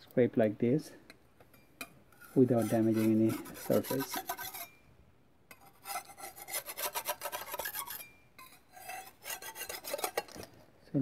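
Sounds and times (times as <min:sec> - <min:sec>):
putty knife scraping metal: 0:01.6 - 0:04.9, 0:05.5 - 0:10.6.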